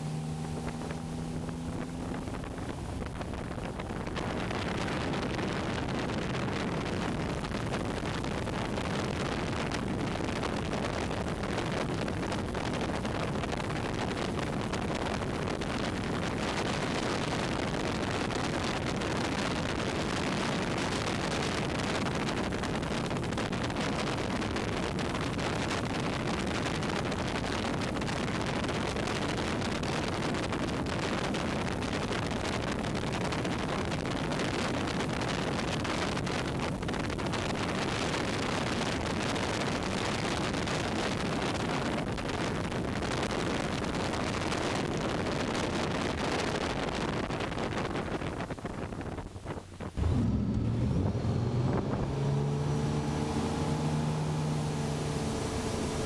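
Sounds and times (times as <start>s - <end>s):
boat motor running: 0.0s - 23.3s, 49.9s - 56.0s
wind buffeting microphone: 0.0s - 56.0s.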